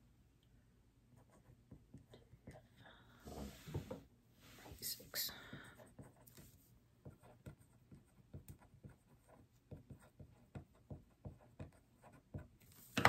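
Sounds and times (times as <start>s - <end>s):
marker pen scratching on paper: 5.7s - 12.6s.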